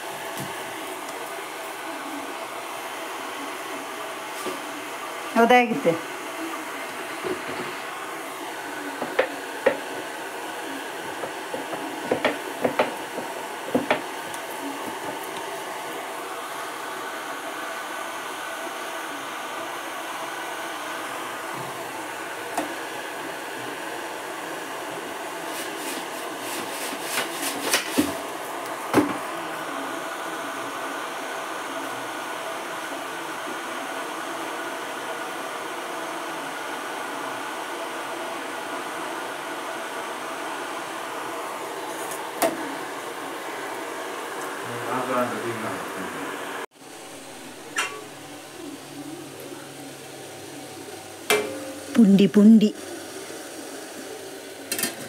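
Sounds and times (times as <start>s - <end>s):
steady hum: 0.0s - 26.8s.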